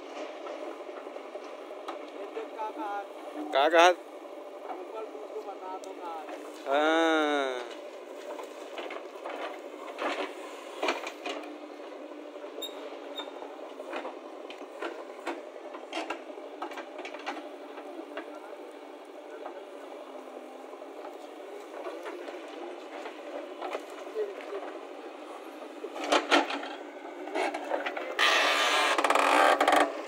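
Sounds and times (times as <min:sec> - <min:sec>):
backhoe loader engine: 0:06.2 - 0:30.0.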